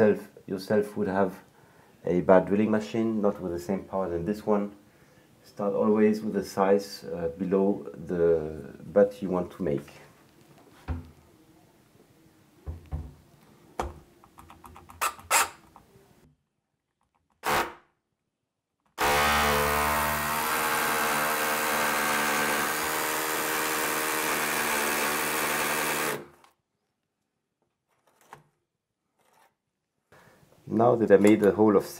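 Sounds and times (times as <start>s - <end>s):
hammer drill boring into brick: 19.0s - 26.3s.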